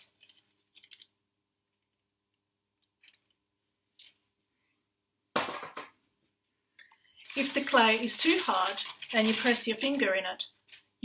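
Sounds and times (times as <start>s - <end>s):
clay slabs rustling on newspaper: 7.2s - 11.0s.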